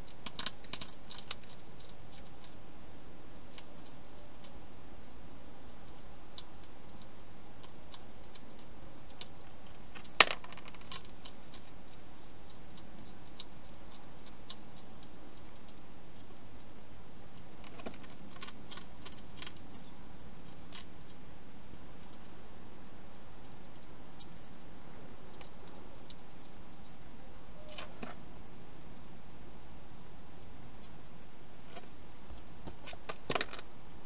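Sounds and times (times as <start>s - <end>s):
hedgehog crunching food: 0.0s - 2.6s, 5.8s - 16.4s, 17.4s - 22.4s.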